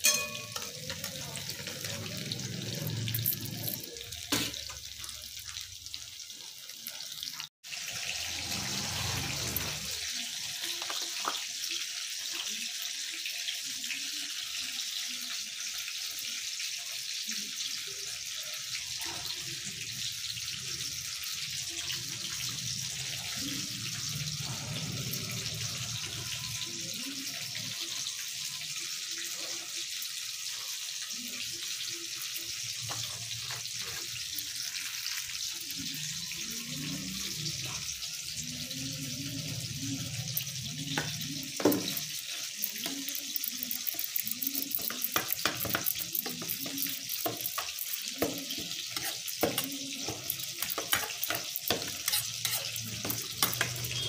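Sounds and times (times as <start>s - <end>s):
spoon scraping steel bowl: 0.0s - 4.4s, 40.3s - 54.0s
hot oil sizzling: 0.0s - 54.0s.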